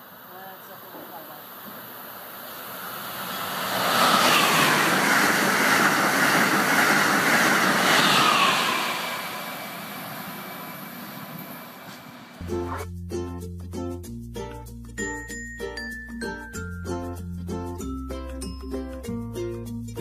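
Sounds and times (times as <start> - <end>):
high-speed train rushing past: 0.0 - 12.4
music: 12.4 - 20.0.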